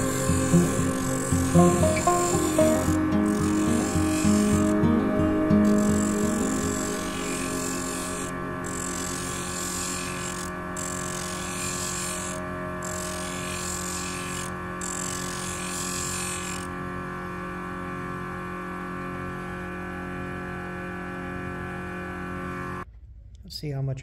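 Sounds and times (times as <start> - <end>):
stone grinding hiss: 0.0 - 4.9, 5.7 - 16.6
grinding wheel motor hum: 0.0 - 22.8.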